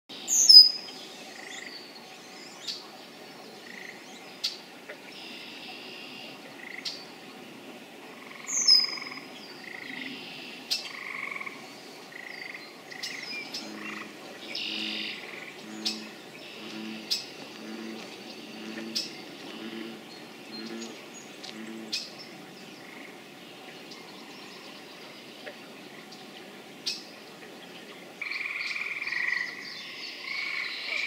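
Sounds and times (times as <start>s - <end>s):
frogs calling: 3.6s - 7.0s, 8.1s - 26.1s, 28.2s - 31.0s
frog croaks: 5.2s - 7.0s, 8.1s - 22.1s, 28.2s - 29.6s
blackbird singing: 8.5s - 11.0s, 12.2s - 22.9s.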